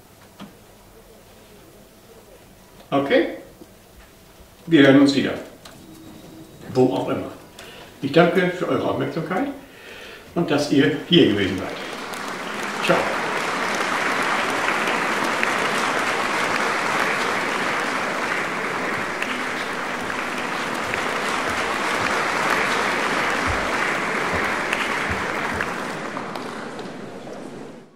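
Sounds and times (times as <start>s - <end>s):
hands clapping: 11.3s - 27.9s.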